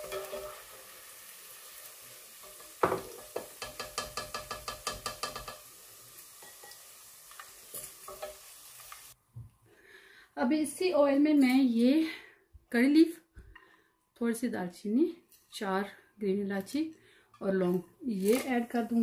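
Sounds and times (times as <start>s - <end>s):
spatula clinking on metal pot: 0.0s - 0.6s, 2.4s - 5.6s
hot oil sizzling: 0.0s - 9.2s.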